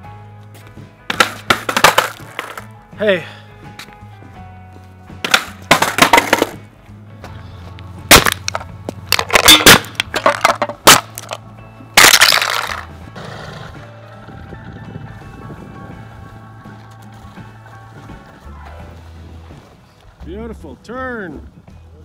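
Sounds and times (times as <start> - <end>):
background music: 0.0 - 22.0
cans crunching under a boot: 1.1 - 2.7, 8.1 - 11.4, 12.0 - 12.9.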